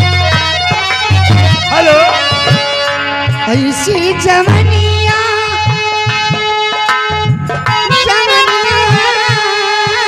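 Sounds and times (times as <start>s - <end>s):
quick hand drum beat: 0.0s - 2.9s
harmonium holding notes: 0.0s - 10.0s.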